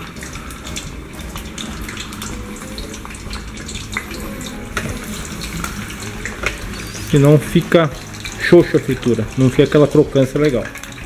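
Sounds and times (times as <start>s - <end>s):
fish deep-frying in oil: 0.0s - 11.0s.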